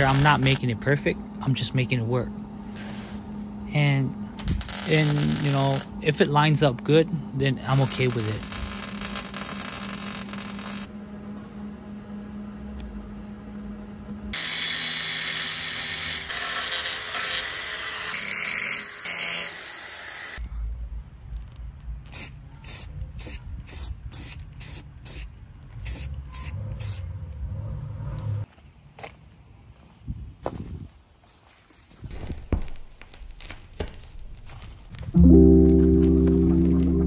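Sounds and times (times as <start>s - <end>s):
power tool hissing: 0.0s - 0.6s
low steady hum: 0.0s - 9.5s, 10.3s - 14.4s, 34.0s - 37.0s.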